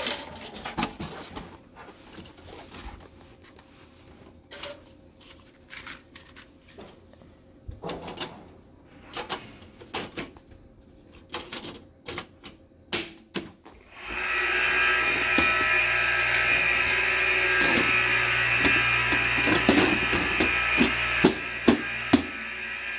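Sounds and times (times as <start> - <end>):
computer fans whining: 13.8 - 22.9.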